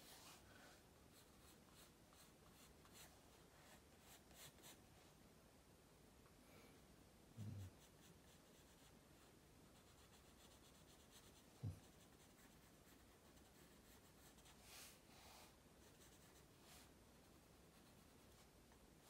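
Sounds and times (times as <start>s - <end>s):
pencil scratching on paper: 9.8s - 14.6s.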